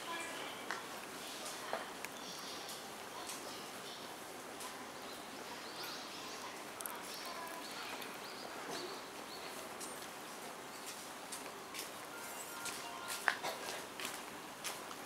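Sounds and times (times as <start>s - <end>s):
murmur of commuters: 0.0s - 15.0s
small birds chirping: 2.0s - 11.1s.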